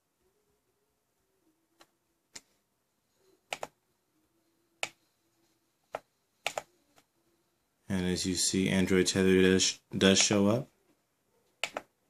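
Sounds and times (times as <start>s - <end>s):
laptop clicks: 3.5s - 3.7s, 5.9s - 6.7s, 11.6s - 11.9s.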